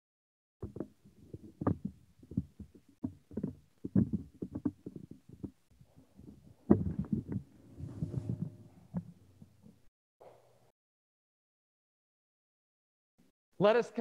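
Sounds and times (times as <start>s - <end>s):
low thumps and knocks: 0.6s - 9.9s.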